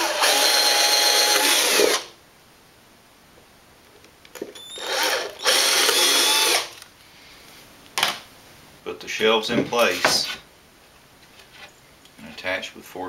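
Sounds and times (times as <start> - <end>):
cordless drill boring wood: 0.0 - 2.1, 4.6 - 6.8.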